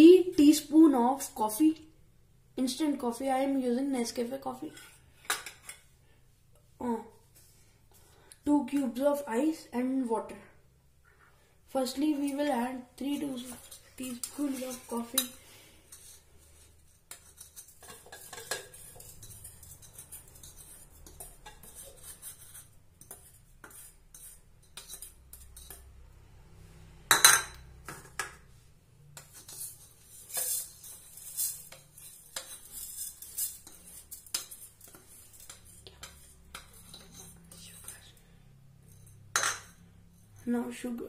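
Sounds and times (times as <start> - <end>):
teaspoon scraping ceramic bowl: 4.6 - 5.9, 12.1 - 25.9, 29.1 - 38.1.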